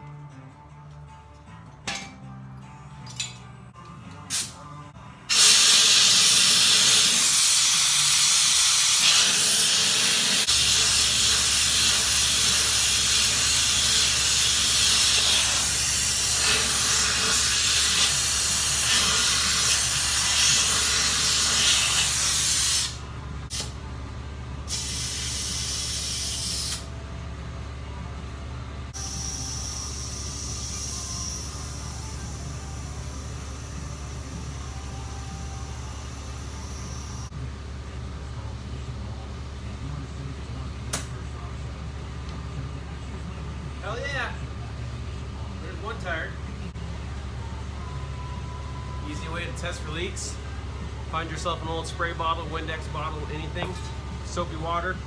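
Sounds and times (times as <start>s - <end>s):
compressed air hissing from hose: 5.3s - 23.7s, 24.7s - 26.9s, 29.0s - 32.0s.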